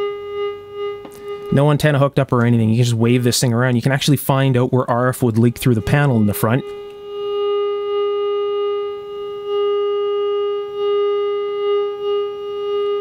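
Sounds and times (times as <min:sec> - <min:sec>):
radio receiver tone: 0:05.1 - 0:07.0.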